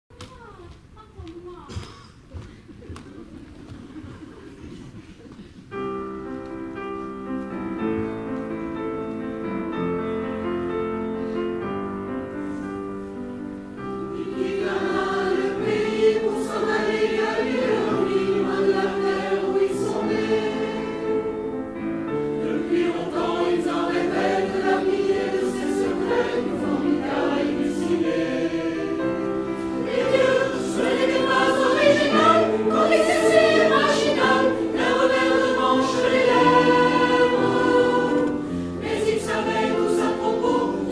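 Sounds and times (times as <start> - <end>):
mixed choir singing: 13.9 - 40.9.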